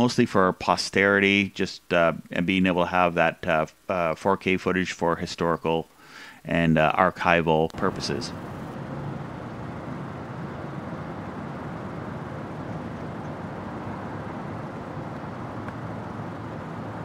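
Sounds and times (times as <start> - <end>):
distant traffic rumble: 6.8 - 17.0.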